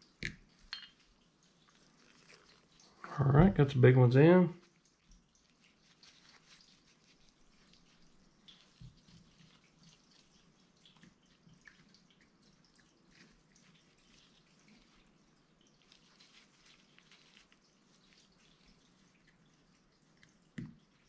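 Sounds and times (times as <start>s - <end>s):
tap: 20.6s - 20.8s.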